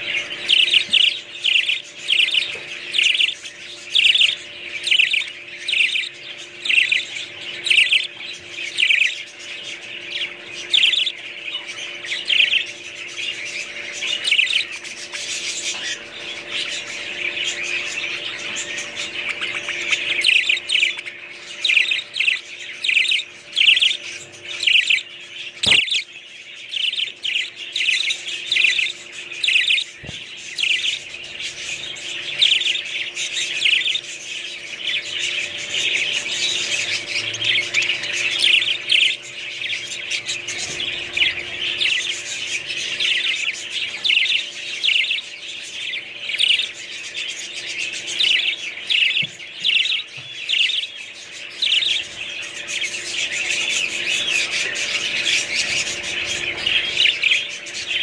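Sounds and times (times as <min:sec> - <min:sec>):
budgerigars chirping and warbling: 0:00.0 - 0:58.0.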